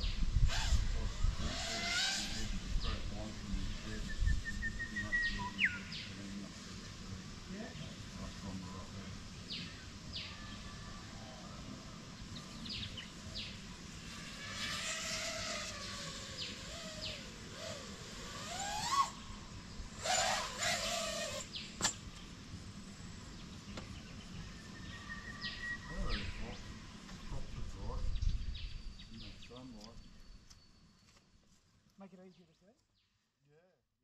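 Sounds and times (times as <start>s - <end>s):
drone motor whine: 0.0s - 5.4s, 10.5s - 21.6s
birds chirping: 1.0s - 31.4s.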